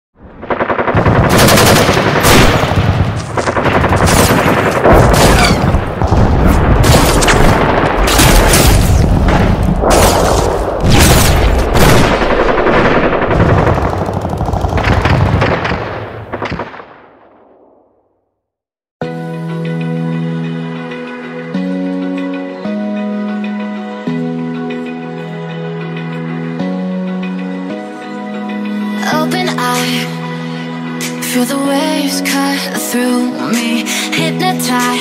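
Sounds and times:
rapid dense bangs and crackling: 0:00.4 - 0:17.2.

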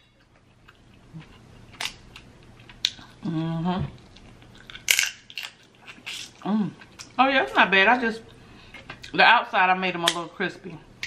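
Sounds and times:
person humming mmm: 0:03.1 - 0:04.0.

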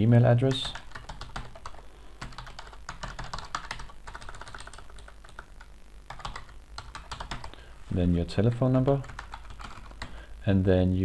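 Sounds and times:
typing on computer keyboard: 0:00.5 - 0:05.5, 0:06.1 - 0:07.6, 0:08.9 - 0:10.1.

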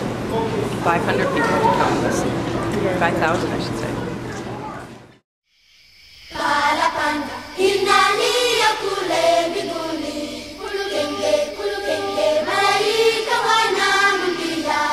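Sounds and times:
choir singing in harmony: 0:06.3 - 0:14.9.

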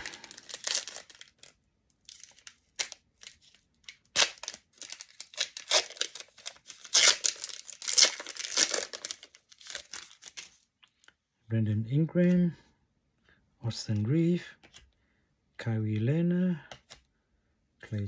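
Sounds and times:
foil wrapper crinkling and tearing: 0:00.0 - 0:10.6.

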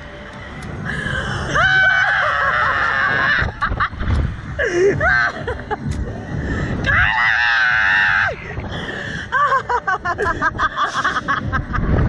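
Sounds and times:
wind noise: 0:00.0 - 0:12.0
woman laughing: 0:09.3 - 0:11.8.

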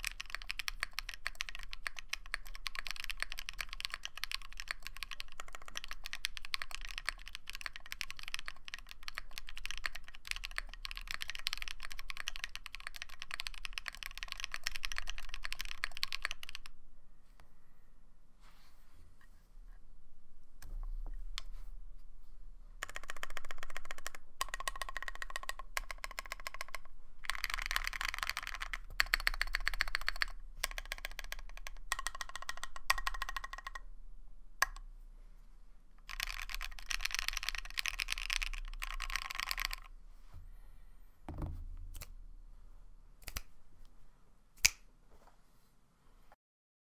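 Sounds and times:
mechanical keyboard typing: 0:00.0 - 0:16.7, 0:22.8 - 0:33.9, 0:36.0 - 0:39.9.

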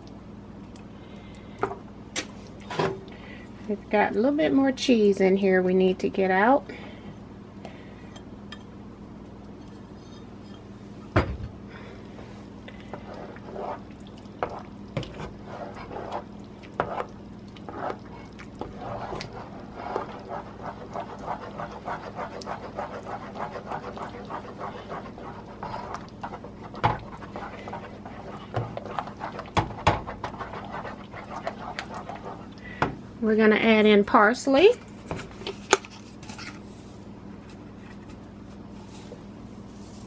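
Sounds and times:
spatula squelching in thick soup: 0:14.5 - 0:32.6.

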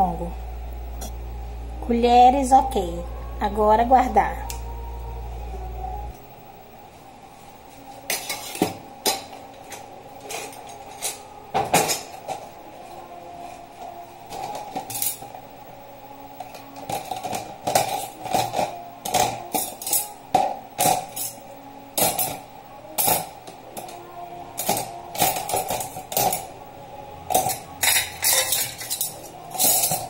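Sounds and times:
metal cutlery clinking: 0:08.1 - 0:12.4, 0:14.3 - 0:15.3, 0:16.8 - 0:20.2, 0:20.8 - 0:21.4, 0:24.6 - 0:26.5, 0:27.3 - 0:30.0.

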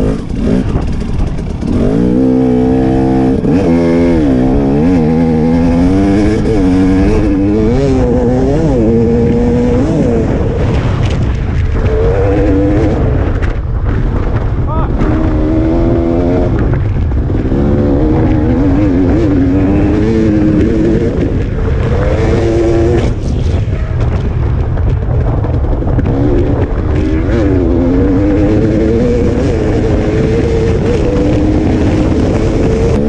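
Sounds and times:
motorcycle engine revving: 0:00.0 - 0:33.0.

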